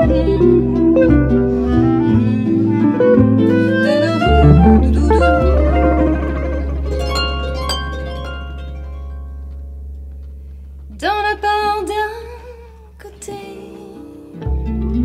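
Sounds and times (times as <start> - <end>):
plucked harp notes: 3.0 - 10.2
wavering melodic line: 3.8 - 9.4
held low bass note: 4.2 - 10.8.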